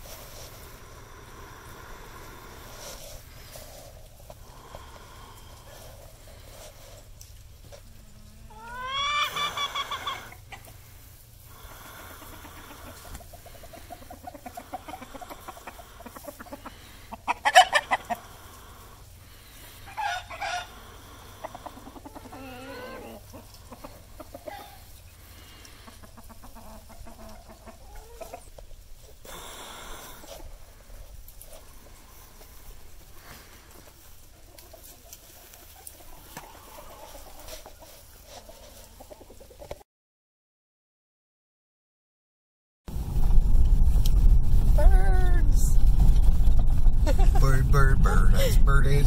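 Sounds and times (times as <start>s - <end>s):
chickens clucking: 0.0s - 39.8s
rooster crowing: 19.9s - 20.8s.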